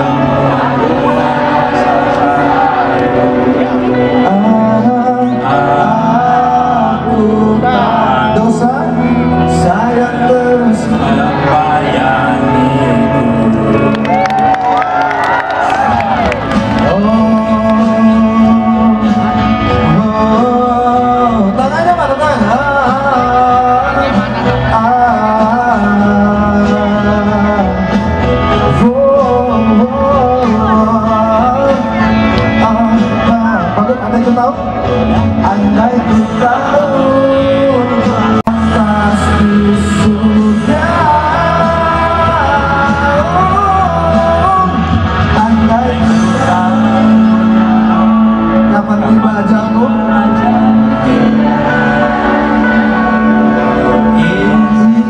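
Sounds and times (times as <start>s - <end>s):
amplified musical accompaniment: 0.0s - 55.0s
men singing a slow pop song: 0.0s - 55.0s.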